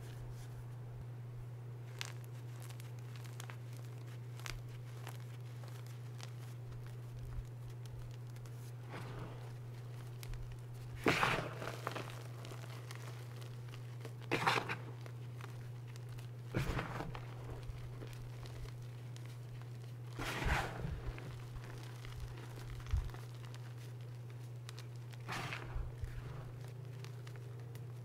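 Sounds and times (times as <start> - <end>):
hands crumbling chalk: 1.8 - 28.0.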